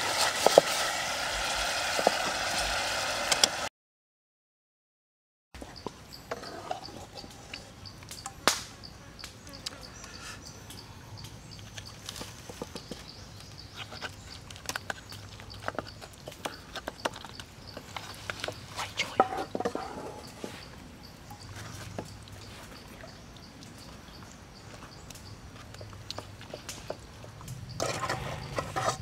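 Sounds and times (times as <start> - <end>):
insects chirping: 5.7 - 29.0.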